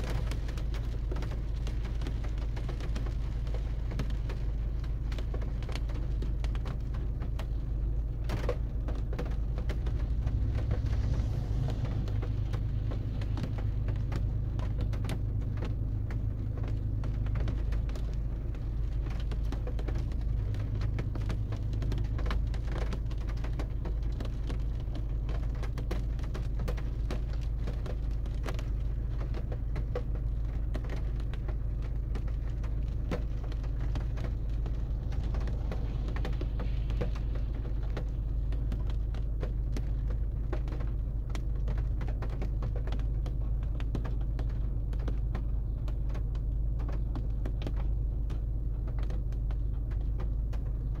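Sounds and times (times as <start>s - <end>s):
low steady rain rumble: 0.0s - 51.0s
raindrops ticking: 0.0s - 51.0s.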